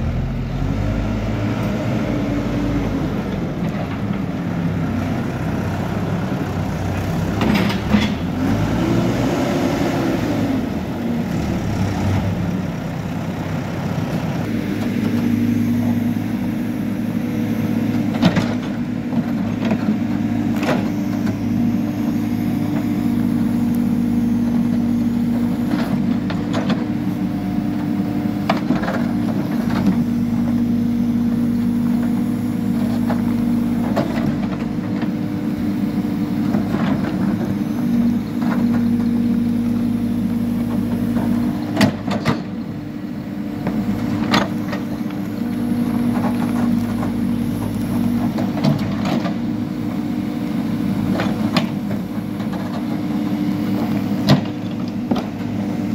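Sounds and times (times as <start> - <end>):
diesel engine running: 0.0 - 55.9.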